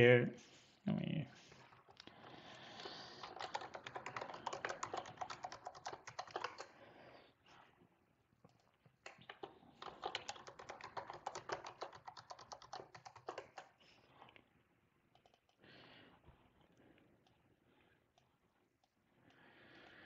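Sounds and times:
computer keyboard typing: 0:02.6 - 0:06.8, 0:08.5 - 0:13.8, 0:15.1 - 0:15.6.

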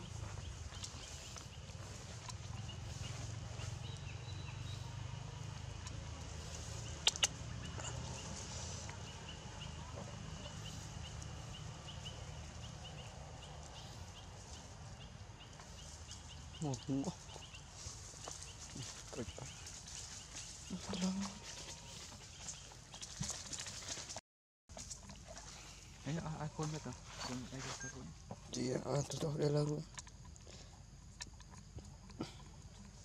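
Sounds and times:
sharp clicks: 0:07.0 - 0:07.4.

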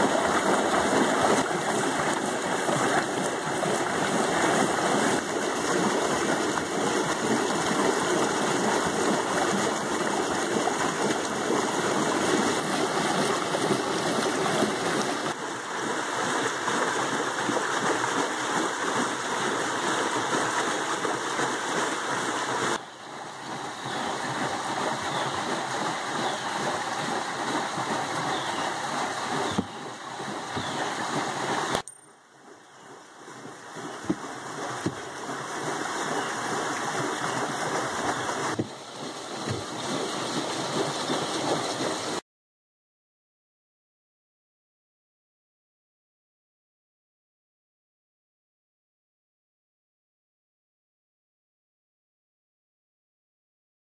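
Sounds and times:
creek water rushing through water wheel: 0:00.0 - 0:42.2.

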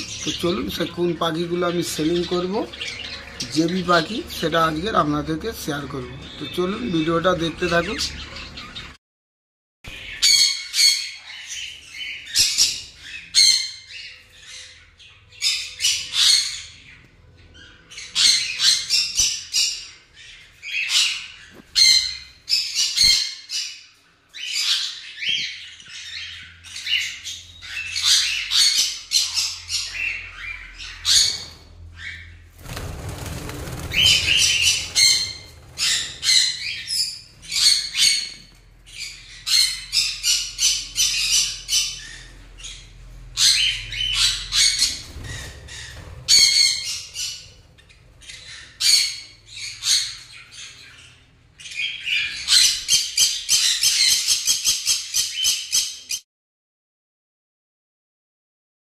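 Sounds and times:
budgerigars chirping and squawking: 0:00.0 - 0:09.0, 0:09.9 - 0:56.2.

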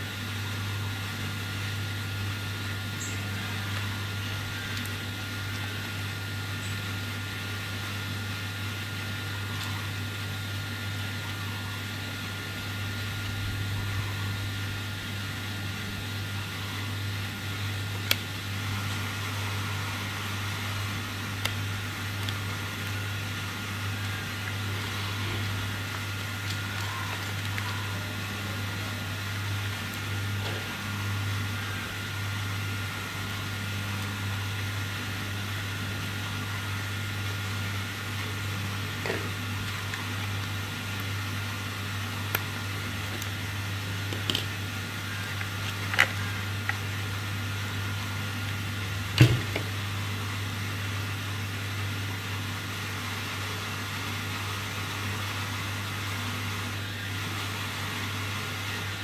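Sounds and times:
low hum with high whine: 0:00.0 - 0:59.0.

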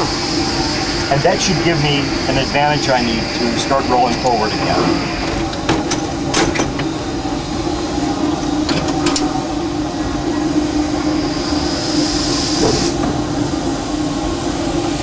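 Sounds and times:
steam hissing: 0:00.0 - 0:15.0
locomotive cab hum and rumble: 0:03.6 - 0:15.0.

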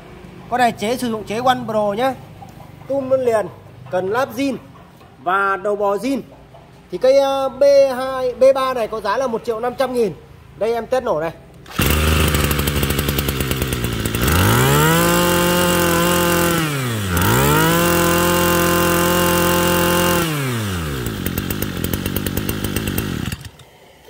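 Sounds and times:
brushcutter engine revving: 0:11.6 - 0:23.8.

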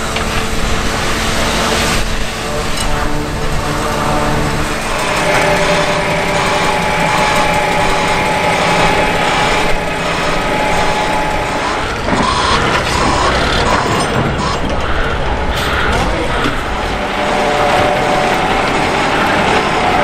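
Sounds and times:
construction machinery whine: 0:00.0 - 0:20.0
repeating short tone: 0:04.9 - 0:14.7.

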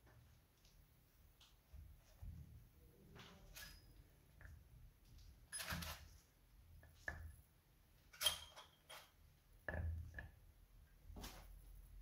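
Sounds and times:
metal screws clinking on wood: 0:05.5 - 0:06.1, 0:08.1 - 0:09.1.

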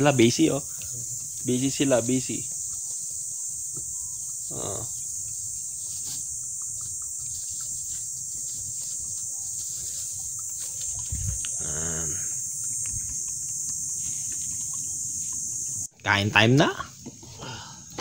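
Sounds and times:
insects chirring: 0:00.0 - 0:18.0
short low vocal sounds: 0:11.2 - 0:12.3.

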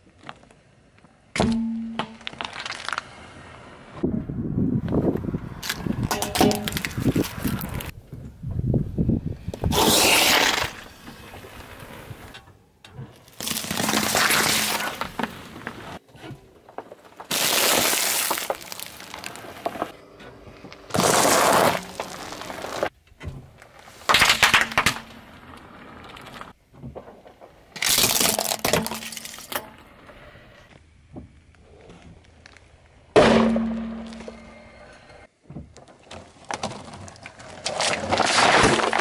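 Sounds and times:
tyre crushing objects: 0:13.3 - 0:16.0, 0:16.6 - 0:20.0, 0:20.9 - 0:25.2, 0:35.8 - 0:39.0.

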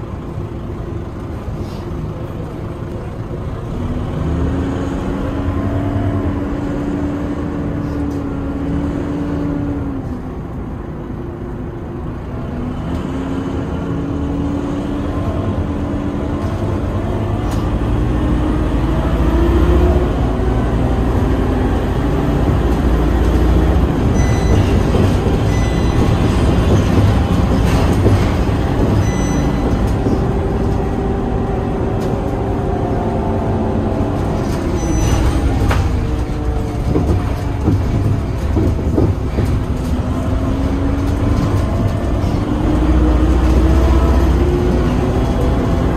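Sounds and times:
bus engine rumbling: 0:00.0 - 0:45.9
short high beeps: 0:24.2 - 0:24.8, 0:25.5 - 0:26.2, 0:29.0 - 0:29.8.

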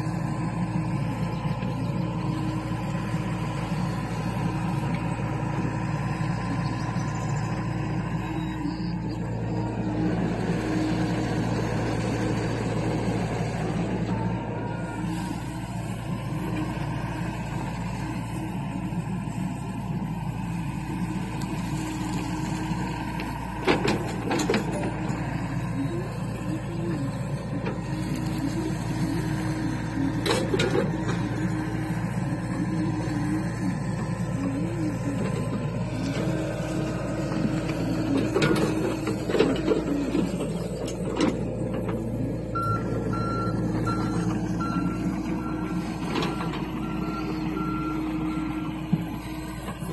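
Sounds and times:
excavator diesel engine running: 0:00.0 - 0:49.9
hydraulics whining: 0:00.0 - 0:49.9
travel alarm beeping: 0:08.2 - 0:09.2, 0:42.5 - 0:48.6.

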